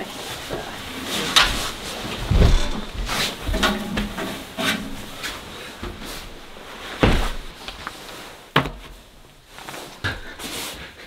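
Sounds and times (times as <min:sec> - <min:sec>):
wooden knocks and clunks: 0:00.4 - 0:09.0.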